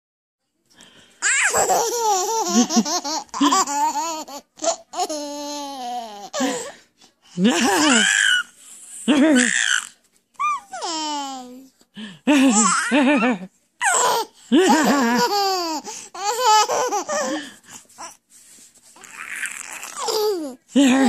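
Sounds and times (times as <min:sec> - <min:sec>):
baby laughing: 0:01.2 - 0:06.6, 0:07.5 - 0:08.4, 0:12.4 - 0:17.4, 0:19.0 - 0:21.0.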